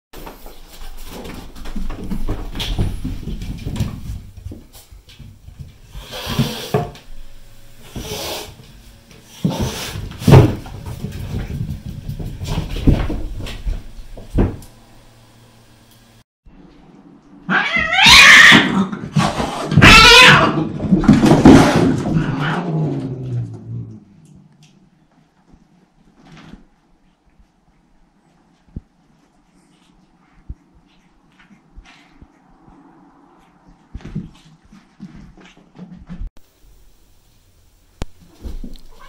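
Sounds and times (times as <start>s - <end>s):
cats scuffling and thumping: 0.2s - 7.1s, 7.9s - 14.6s, 17.6s - 23.9s, 25.1s - 27.6s, 33.4s - 36.3s, 38.2s - 39.0s
cat yowling: 17.5s - 18.8s, 19.7s - 20.7s.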